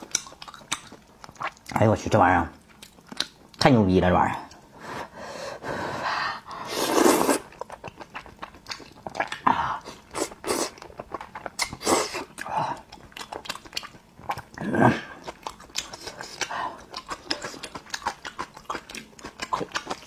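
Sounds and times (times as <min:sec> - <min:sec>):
chewing clicks: 0:00.0 - 0:01.8, 0:02.7 - 0:03.7, 0:12.4 - 0:14.5, 0:15.2 - 0:20.0
person slurping noodles: 0:06.4 - 0:07.6, 0:09.1 - 0:10.8, 0:11.6 - 0:12.4.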